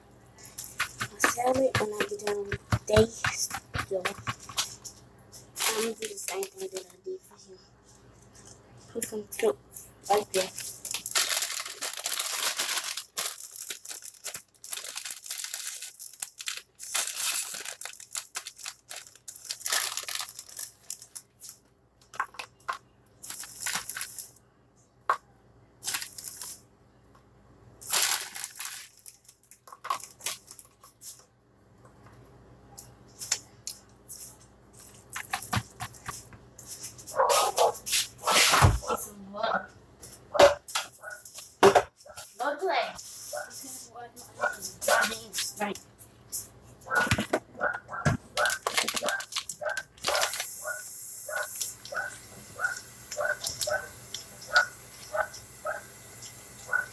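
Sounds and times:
plastic packaging crinkling: 0.4s - 7.2s, 10.1s - 24.4s, 25.8s - 26.6s, 27.8s - 31.2s, 48.2s - 56.9s.

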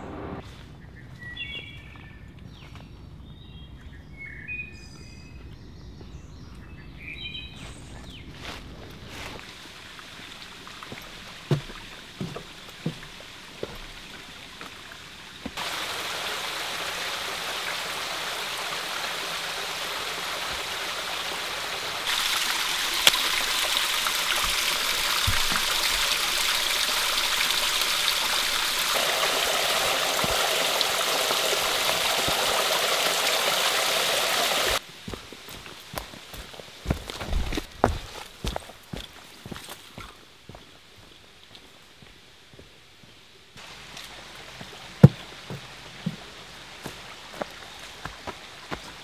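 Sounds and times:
stream water rushing: 9.0s - 38.6s, 43.6s - 49.0s.

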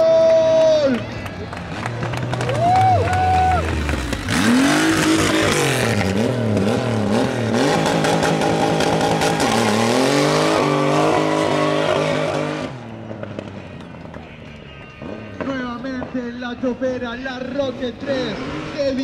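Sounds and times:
motorcycle engine revving hard: 3.5s - 13.6s, 17.5s - 19.0s.

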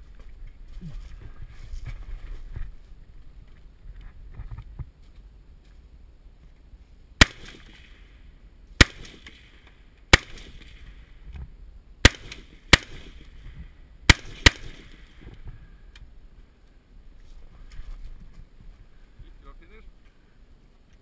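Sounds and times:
rifle shots with echo: 7.2s - 11.2s, 12.0s - 15.2s.

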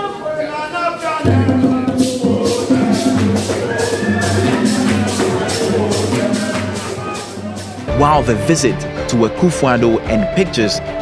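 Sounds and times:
high rattling percussion: 1.2s - 8.6s
music with a steady beat: 1.3s - 9.2s.

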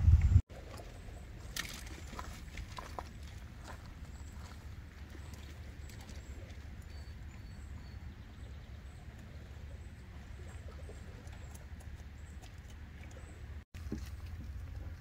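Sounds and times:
wind rumbling on microphone: 0.0s - 9.5s.

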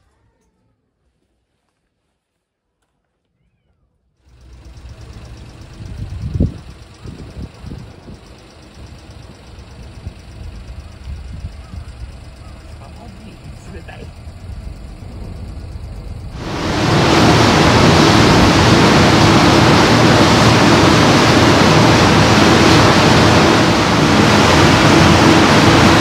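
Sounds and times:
low engine hum: 4.3s - 26.0s
wind and churning wake: 16.3s - 26.0s.

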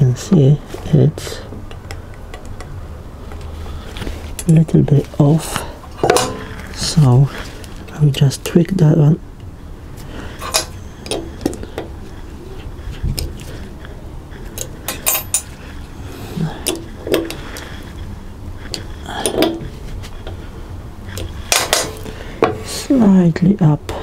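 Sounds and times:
small metallic clicks and taps: 1.6s - 2.7s.

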